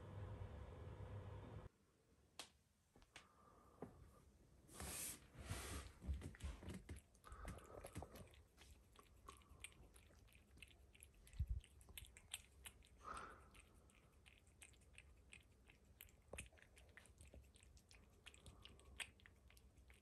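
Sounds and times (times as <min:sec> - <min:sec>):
cat chewing and lapping: 0:05.5 - 0:20.0.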